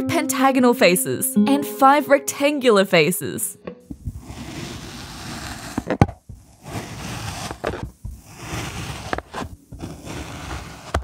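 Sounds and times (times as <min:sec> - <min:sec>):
plastic tool scraping sand: 0:04.1 - 0:11.0.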